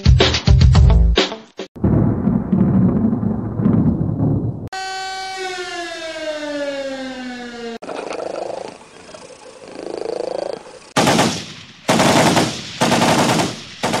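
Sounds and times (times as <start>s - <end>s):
machine-gun fire: 11.0s - 14.0s.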